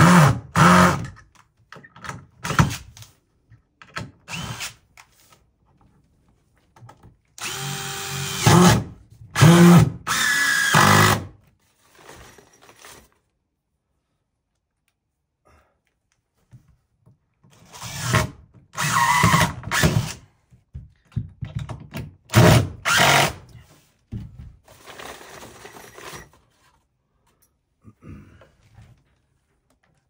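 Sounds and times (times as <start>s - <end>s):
cordless drill driving screws: 4.3s - 4.8s, 7.4s - 11.3s, 17.5s - 20.2s, 22.3s - 23.4s.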